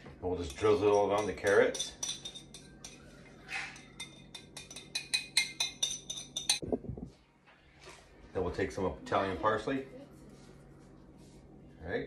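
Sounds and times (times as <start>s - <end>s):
glass jar clinking: 0.5s - 3.1s, 3.7s - 6.6s.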